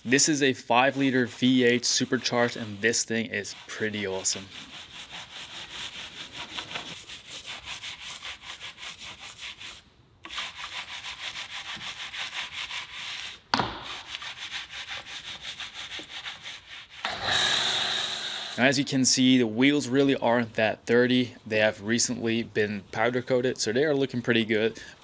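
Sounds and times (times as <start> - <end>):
brush scrubbing a wheel: 0.0 - 17.0
spray hissing: 17.0 - 18.8.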